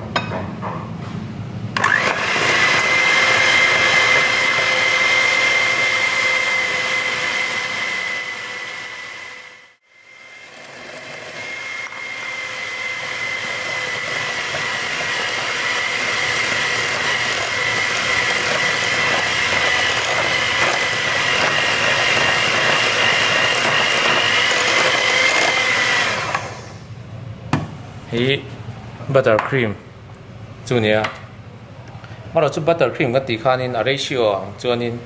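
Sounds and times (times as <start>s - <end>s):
electric hand mixer whining: 1.8s - 26.9s.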